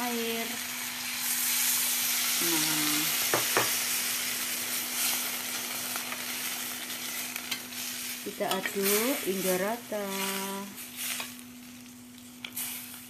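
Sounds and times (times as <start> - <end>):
food sizzling in a pan: 0.0 - 13.0.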